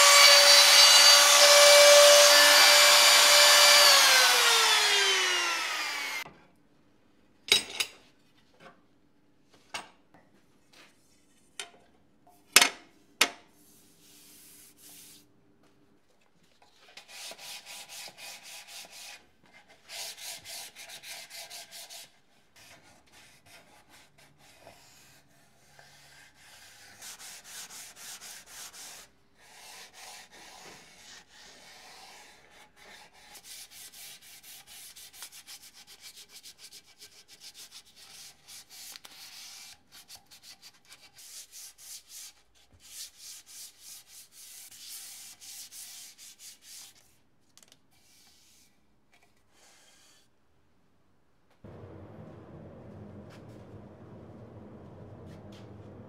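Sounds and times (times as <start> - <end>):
router running and spinning down: 0.0 - 6.3
sandpaper rubbing on wood: 23.2 - 47.0.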